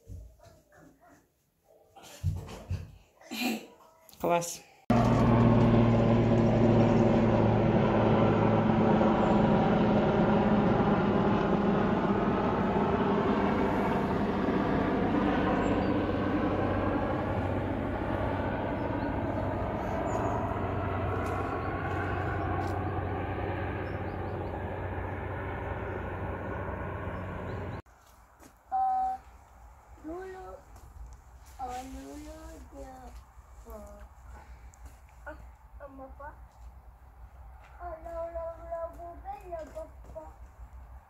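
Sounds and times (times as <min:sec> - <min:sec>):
machine humming drone: 0:04.9 - 0:27.8.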